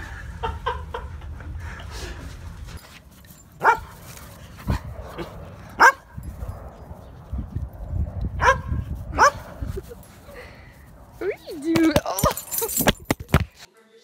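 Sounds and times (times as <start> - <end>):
dog barking: 3.6 - 3.9, 5.8 - 6.1, 8.4 - 9.4.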